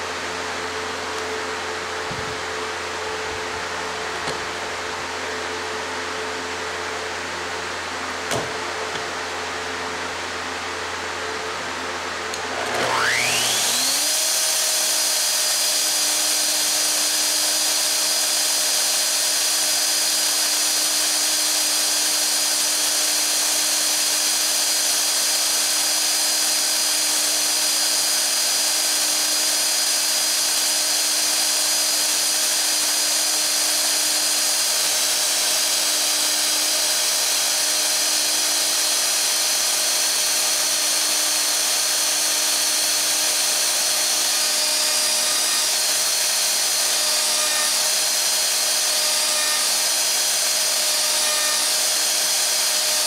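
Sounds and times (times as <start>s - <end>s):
router whining cutting wood: 0.0s - 53.0s.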